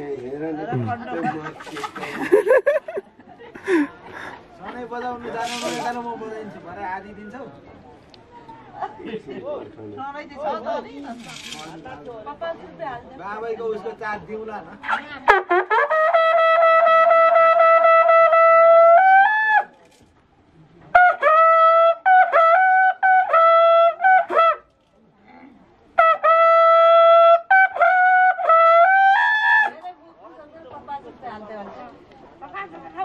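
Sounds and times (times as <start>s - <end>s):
brass horn blasts: 15.3s - 19.0s.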